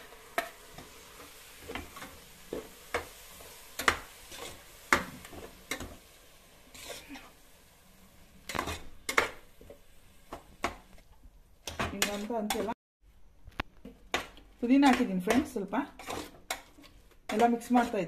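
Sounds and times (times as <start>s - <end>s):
spatula scraping metal pot: 0.0s - 6.0s, 6.6s - 7.4s, 8.4s - 9.4s, 14.7s - 18.0s
faint sizzle: 0.0s - 13.6s.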